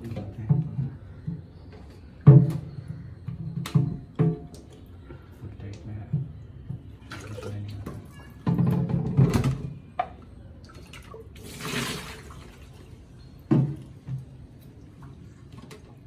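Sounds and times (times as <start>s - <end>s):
water splashing into sink: 7.0s - 8.1s, 10.7s - 12.7s.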